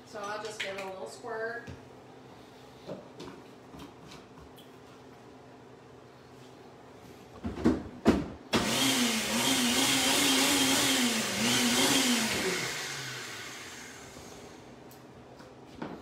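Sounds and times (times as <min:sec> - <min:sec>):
blender motor running: 0:08.6 - 0:14.7.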